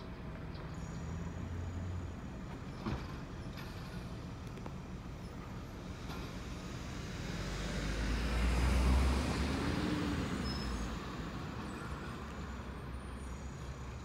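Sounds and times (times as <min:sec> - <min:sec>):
car passing by: 0:06.2 - 0:13.2.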